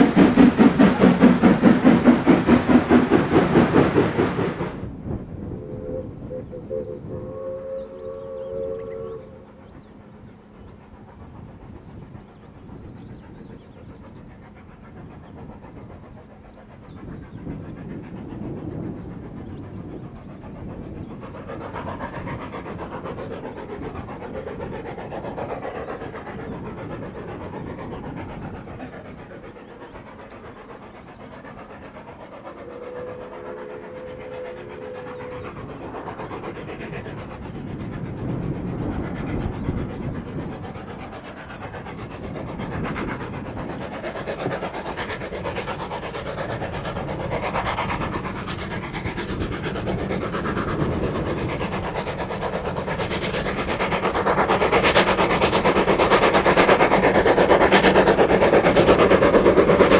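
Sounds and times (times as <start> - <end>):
steam locomotive chuffing: 0.0 - 59.9
steam whistle: 5.5 - 9.6, 32.6 - 35.4.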